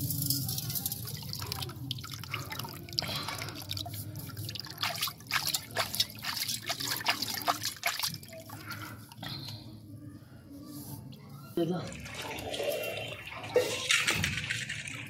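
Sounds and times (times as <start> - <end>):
water dripping into steel bowl: 0.0 - 9.2.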